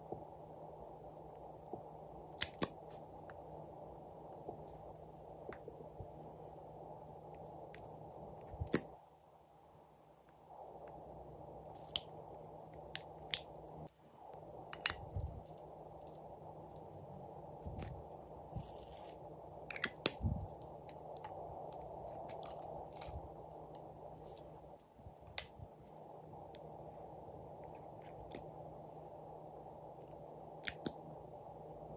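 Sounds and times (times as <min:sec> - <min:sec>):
steady low hiss: 0:00.0 - 0:31.9.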